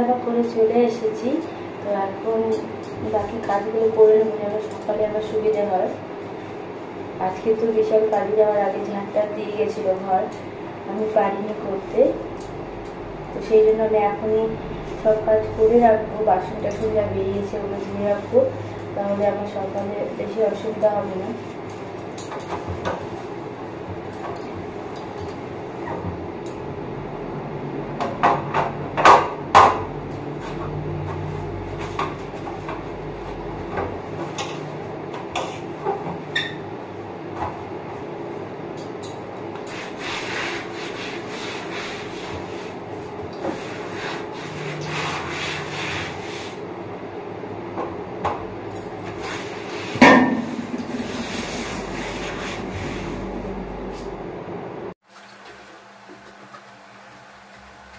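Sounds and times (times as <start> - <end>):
steady background hum: 0.0 - 57.9
cloth rubbing on stove top: 17.2 - 23.9, 39.5 - 46.7, 49.0 - 54.1.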